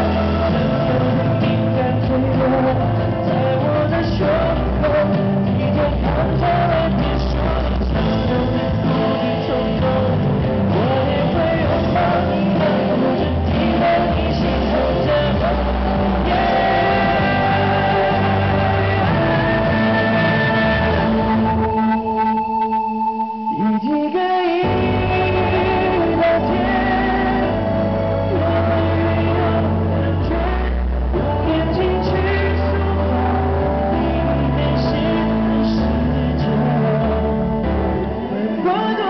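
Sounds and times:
man singing into a microphone: 0.0s - 21.8s, 23.5s - 39.0s
instrumental accompaniment: 0.0s - 39.0s.

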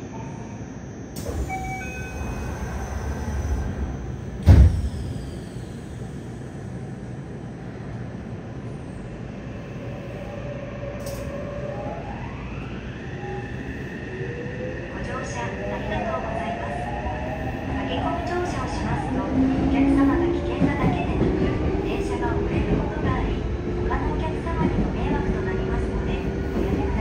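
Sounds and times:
train doors sliding shut: 1.2s - 6.0s, 11.0s - 11.4s.

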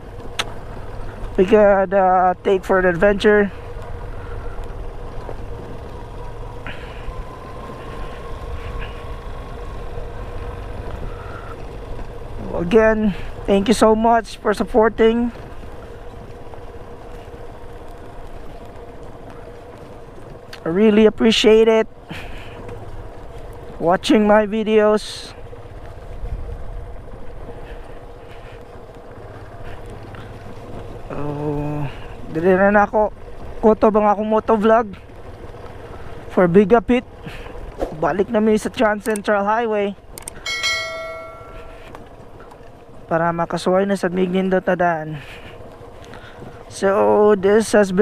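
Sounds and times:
motorcycle engine drone: 0.0s - 48.0s
wind rumble on microphone: 21.9s - 43.2s.

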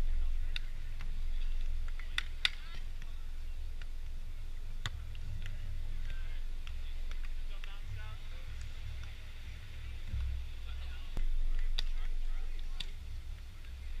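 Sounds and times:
wind rumble on microphone: 0.0s - 14.0s
hands smacking volleyball: 4.8s - 7.8s.

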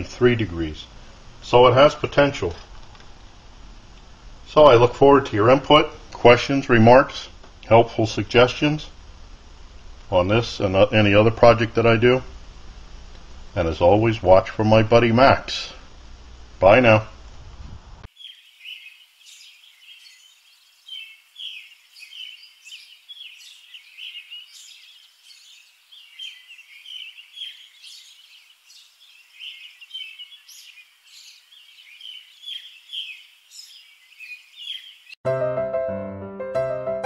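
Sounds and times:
small birds chirping: 18.0s - 35.2s.

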